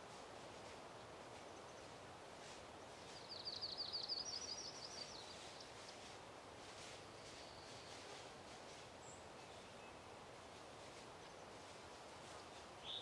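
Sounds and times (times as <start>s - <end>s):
faint outdoor hiss: 0.0s - 13.0s
songbird singing: 2.8s - 6.0s, 9.0s - 10.1s, 12.8s - 13.0s.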